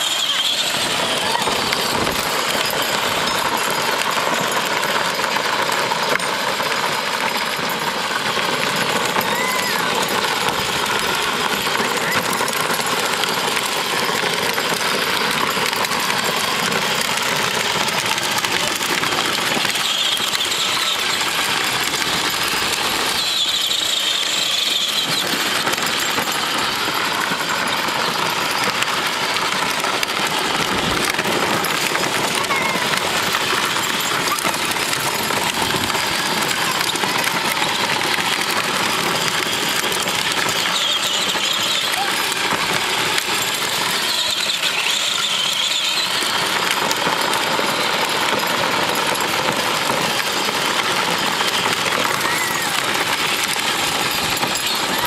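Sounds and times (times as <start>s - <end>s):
plastic wheels rolling on dirt: 0.0s - 55.0s
toy car electric motor whirring: 0.0s - 55.0s.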